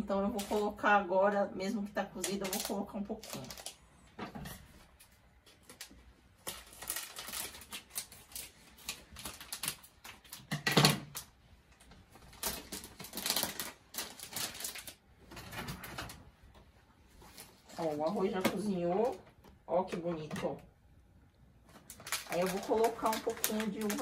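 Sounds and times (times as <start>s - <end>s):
plastic pouch crinkling: 2.1s - 3.9s, 5.5s - 10.5s, 12.1s - 15.1s, 21.7s - 24.0s.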